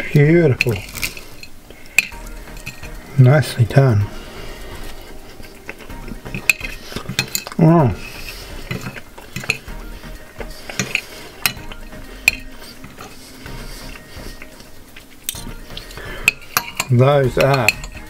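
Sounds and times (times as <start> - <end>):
cutlery scraping on a plate: 0.6 - 3.1, 4.4 - 18.0.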